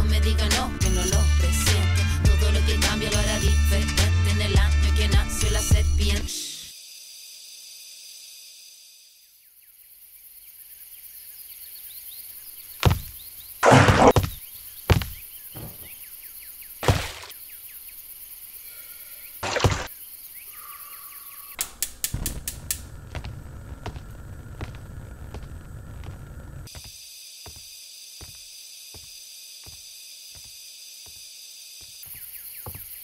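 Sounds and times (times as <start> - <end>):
steady high hiss: 6.7 - 10.9
heavy thuds and impacts: 12.8 - 16.0, 16.8 - 17.3
burner flame rumble: 21.8 - 26.7.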